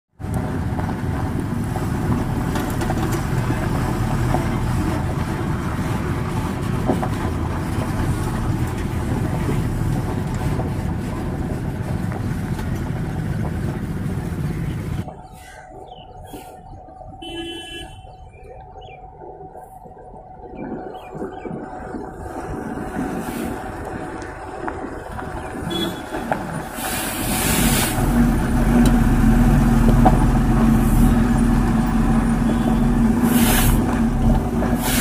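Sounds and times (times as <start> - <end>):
truck diesel engine passing: 0.2 - 15.2, 22.7 - 35.0.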